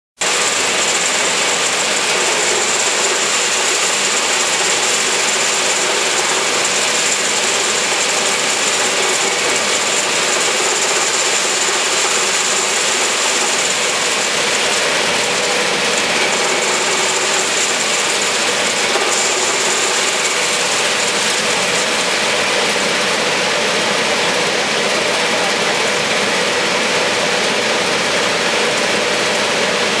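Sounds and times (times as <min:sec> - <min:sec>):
blower fan whine: 0:00.2 - 0:30.0
vibrating screen rattling pellets: 0:00.3 - 0:22.4.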